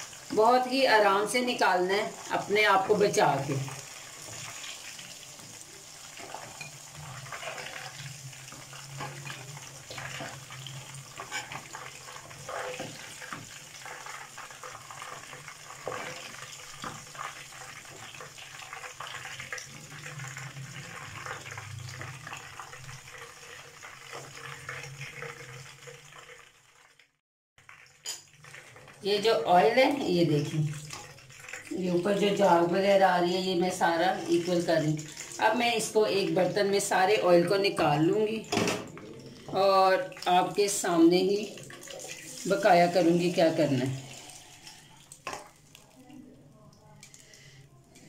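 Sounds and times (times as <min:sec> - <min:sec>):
chicken deep-frying in oil: 0:00.0 - 0:48.0
metal spatula scraping pan: 0:06.1 - 0:14.2.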